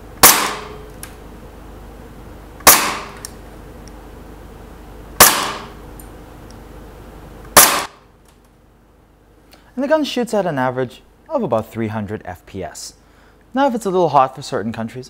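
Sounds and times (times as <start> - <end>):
airsoft pistol shots: 0.2 - 0.9, 2.6 - 3.2, 5.2 - 5.8, 7.5 - 8.0.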